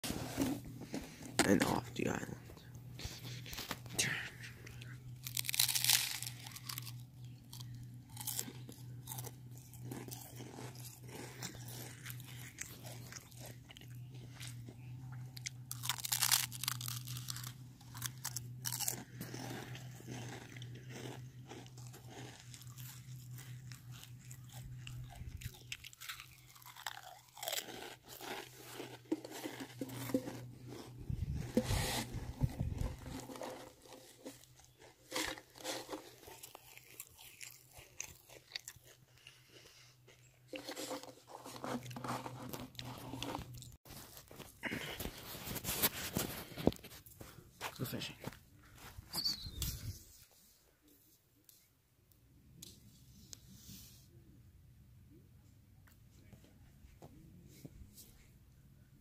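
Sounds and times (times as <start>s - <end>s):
low hum: 28.6s - 36.2s.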